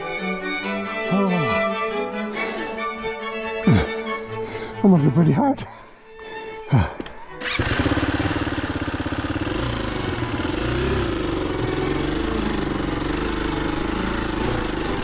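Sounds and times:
motorcycle engine revving: 6.7 - 15.0.

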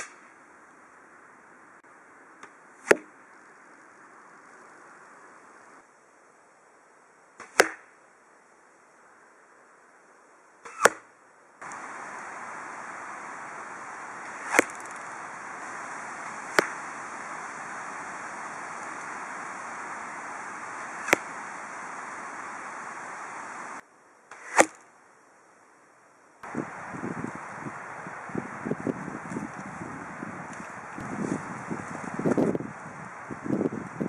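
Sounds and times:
steady hiss: 0.0 - 34.0
arrows hitting foam targets: 2.8 - 3.1, 7.4 - 7.9, 10.7 - 11.0, 14.3 - 15.0, 16.2 - 16.8, 24.3 - 24.8.

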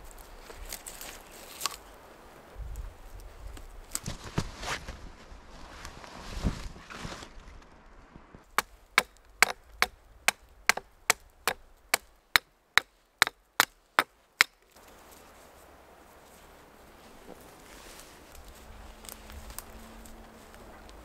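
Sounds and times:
hatchet chopping wood: 8.5 - 14.6.

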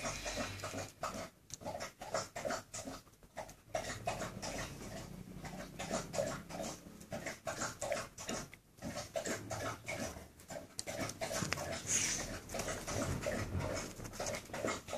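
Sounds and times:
dog breathing and mouthing: 0.0 - 14.9.

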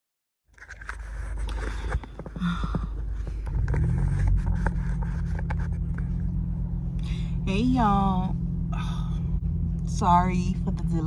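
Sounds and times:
car engine hum: 0.6 - 11.0.

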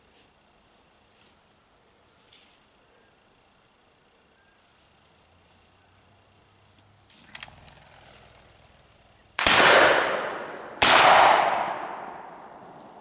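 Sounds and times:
shotgun shots echoing: 9.4 - 12.8.

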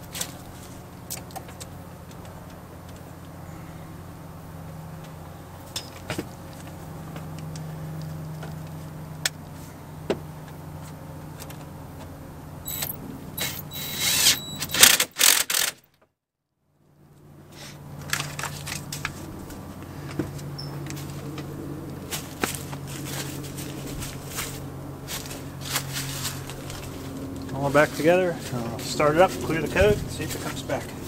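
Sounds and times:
engine idling: 0.0 - 15.4, 16.8 - 31.0
loud rattling and clicking: 12.7 - 15.9.

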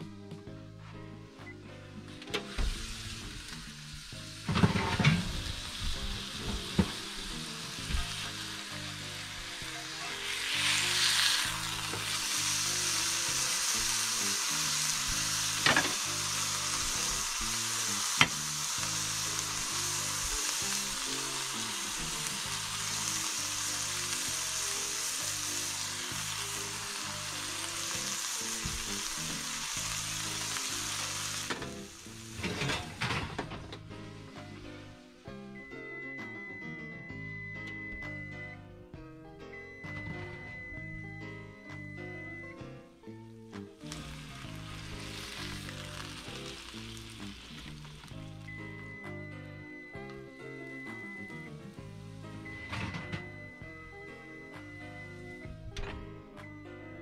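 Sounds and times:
soft background music: 0.0 - 57.0
burger patty sizzling: 1.2 - 38.2, 39.8 - 57.0.

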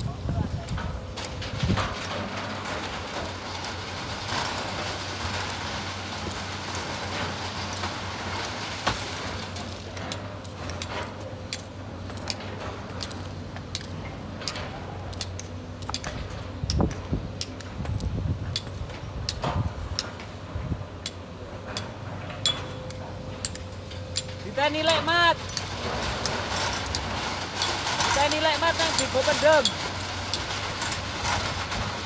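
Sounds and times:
excavator diesel engine running: 18.2 - 32.0.

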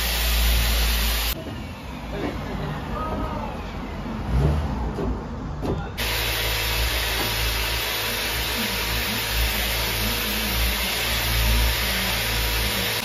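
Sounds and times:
woodworking machine motor humming: 6.0 - 13.0.

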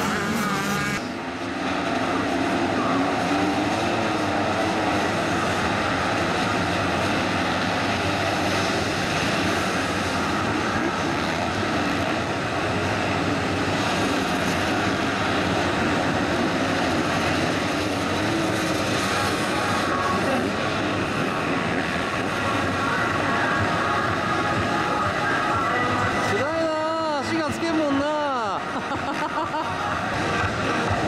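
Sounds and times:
motocross bike engines revving: 0.0 - 31.0.

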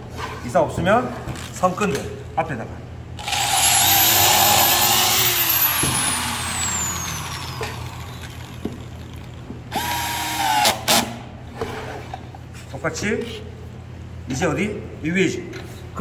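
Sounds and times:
drill-driver driving a screw: 3.2 - 8.8, 9.8 - 11.0
electric drill boring into wood: 3.2 - 10.8.

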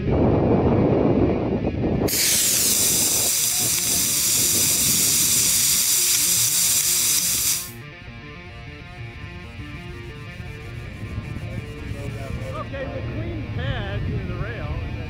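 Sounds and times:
rocket motor burning with loud hiss: 2.1 - 7.8.

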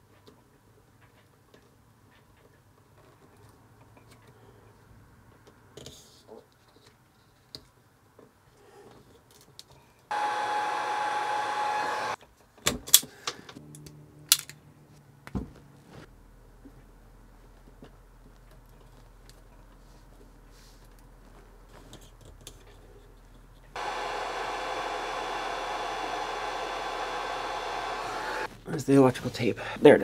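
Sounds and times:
heat gun blowing with a whine: 10.1 - 12.2, 23.8 - 28.5.

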